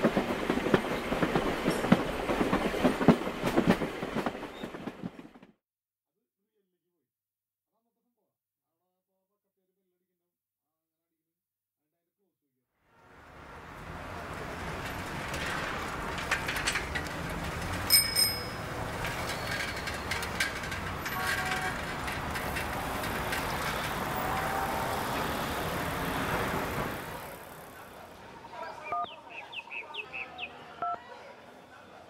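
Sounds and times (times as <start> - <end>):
bicycle tyre and riding noise: 13.1 - 28.2
bicycle bell ringing: 17.9 - 19.6
phone keypad beeps: 28.9 - 29.1.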